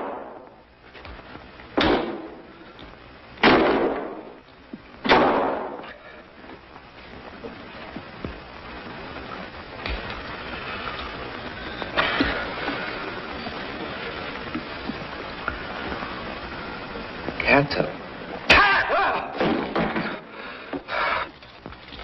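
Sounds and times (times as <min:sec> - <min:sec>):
loud crashes: 0:03.4 - 0:04.3, 0:18.5 - 0:20.3.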